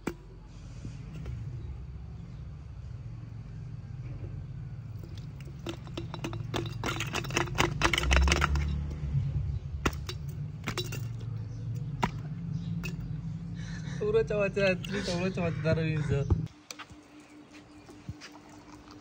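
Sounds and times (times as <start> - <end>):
steady low hum: 0.0 - 19.0
ice cubes clinking against glass: 5.0 - 8.8
ice cube tray twisted and knocked: 5.1 - 8.8.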